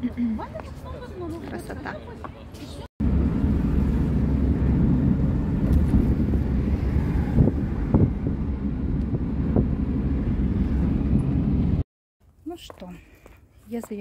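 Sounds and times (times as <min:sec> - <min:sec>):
road and engine rumble: 0:00.0 - 0:14.0
wind buffeting from open window: 0:03.0 - 0:11.8.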